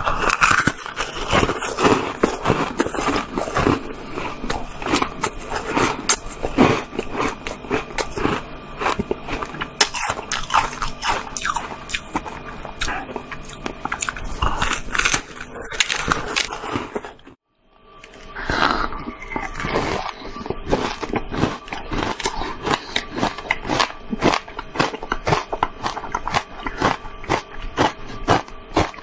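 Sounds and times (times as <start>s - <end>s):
ice cracking between teeth: 0.0s - 3.8s.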